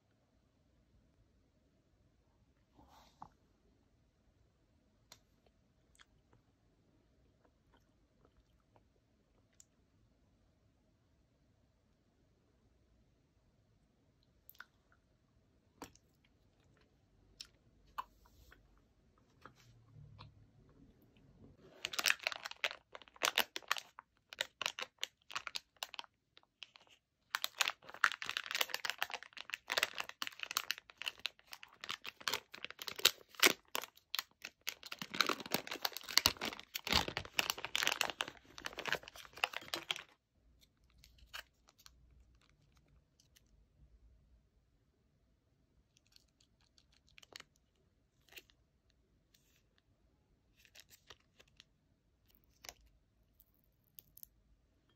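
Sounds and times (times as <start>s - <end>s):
plastic packaging crinkling: 21.6s - 40.2s.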